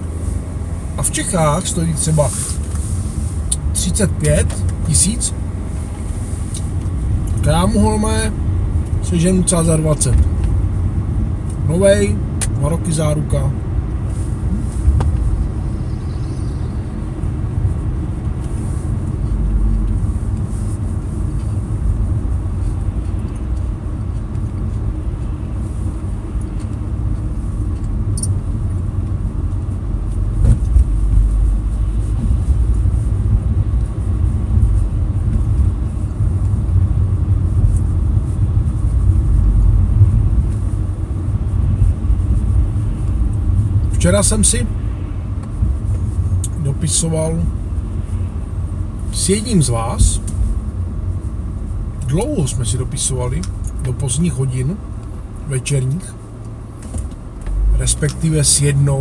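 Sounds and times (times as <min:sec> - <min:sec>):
car cabin road rumble: 0:00.0 - 0:59.0.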